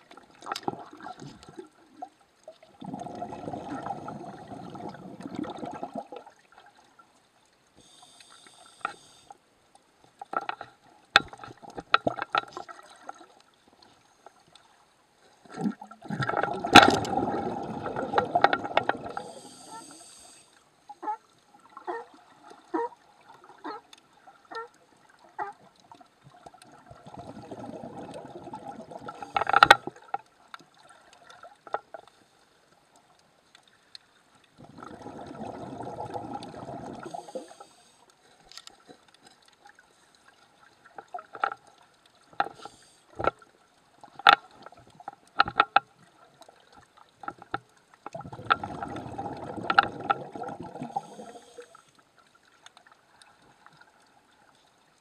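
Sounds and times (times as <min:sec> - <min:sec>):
underwater bubbles gurgling: 0:00.0 - 0:09.1, 0:10.2 - 0:32.2, 0:32.8 - 0:55.0
sea lion clicks and calls: 0:21.0 - 0:22.1, 0:22.7 - 0:23.0, 0:23.6 - 0:24.8, 0:25.4 - 0:25.7.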